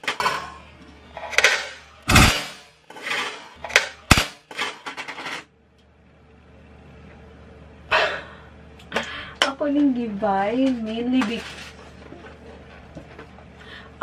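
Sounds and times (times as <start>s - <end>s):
faint steady hum: 0.1s - 14.0s
sharp bangs: 1.3s - 4.9s.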